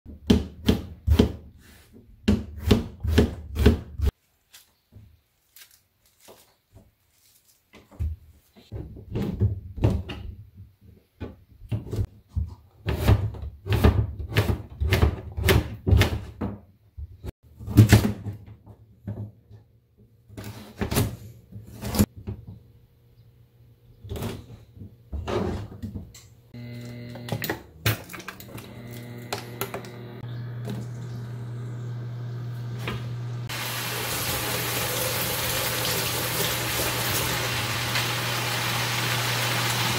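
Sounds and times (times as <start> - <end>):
induction cooktop hum: 19.9 - 39.9
vegetables hissing in pan: 33.5 - 39.9.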